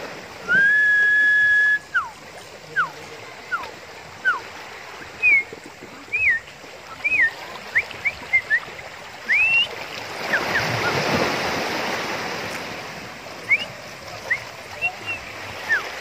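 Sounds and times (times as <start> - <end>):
wave washing onto beach: 0.0 - 16.0
bird whistled chirps: 5.0 - 5.5, 6.1 - 11.0, 13.5 - 15.9.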